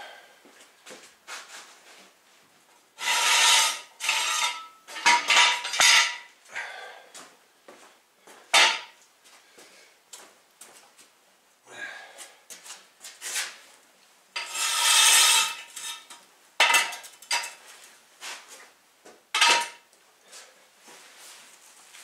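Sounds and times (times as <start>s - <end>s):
metal rasping: 3.0s - 6.1s, 14.4s - 16.2s.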